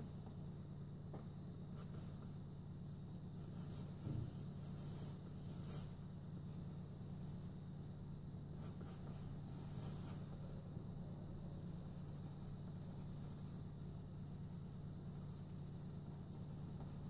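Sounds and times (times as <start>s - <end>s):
steady low hum: 0.0s - 17.0s
pencil sketching on paper: 1.7s - 2.4s, 3.2s - 7.6s, 8.5s - 10.7s, 11.6s - 17.0s.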